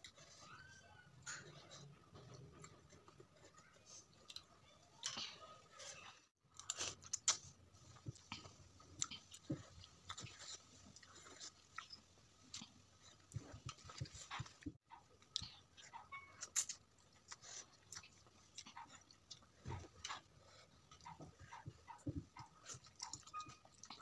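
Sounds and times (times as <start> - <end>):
slurping and chewing noodles: 6.6 - 24.0.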